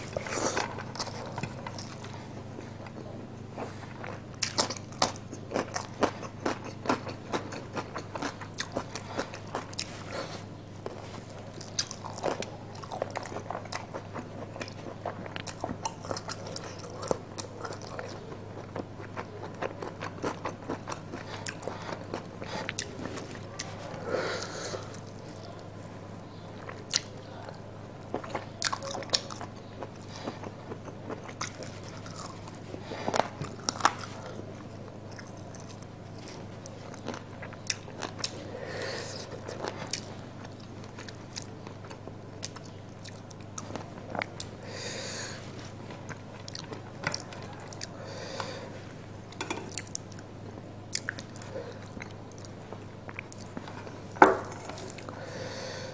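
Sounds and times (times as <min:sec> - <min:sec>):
chewing chicken: 0:00.0 - 0:55.8.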